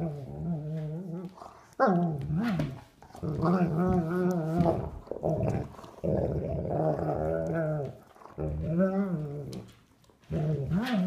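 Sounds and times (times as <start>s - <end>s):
dogs play-growling: 0.0s - 11.0s.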